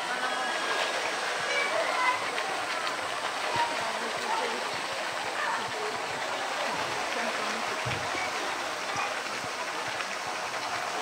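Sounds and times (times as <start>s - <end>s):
faint voices of onlookers: 0.0s - 11.0s
water sloshing and splashing: 0.0s - 11.0s.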